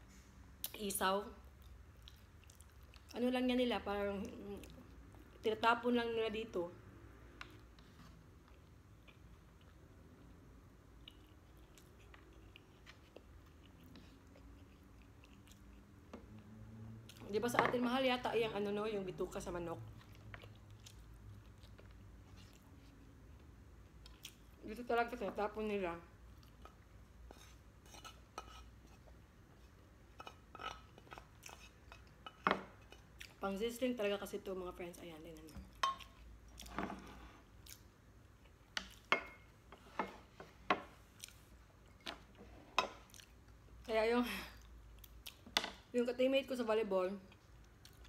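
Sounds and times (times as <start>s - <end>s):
faint chewing with wet clicks: 1.4s - 5.6s, 7.1s - 17.3s, 19.8s - 24.7s, 26.1s - 33.8s, 34.8s - 36.8s, 37.4s - 39.5s, 41.1s - 43.9s, 44.6s - 45.6s, 47.2s - 48.0s
wooden spoon scraping a plate: 27.3s - 29.0s.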